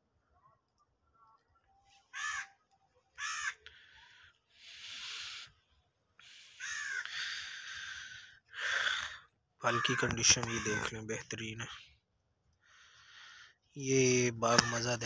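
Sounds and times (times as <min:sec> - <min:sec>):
crows cawing: 0:02.0 - 0:05.6, 0:06.2 - 0:11.8, 0:14.4 - 0:15.0.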